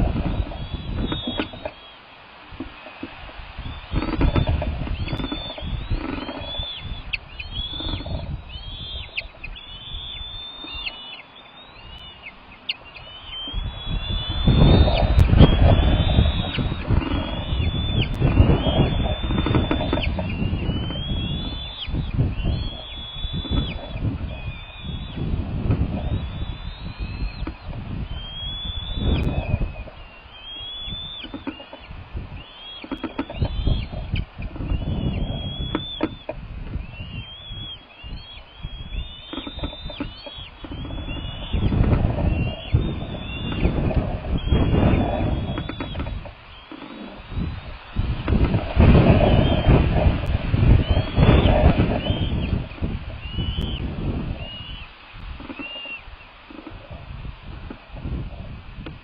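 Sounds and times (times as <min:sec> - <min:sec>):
eagles calling: 0:00.0 - 0:58.5
wind rumble on microphone: 0:00.0 - 0:59.0.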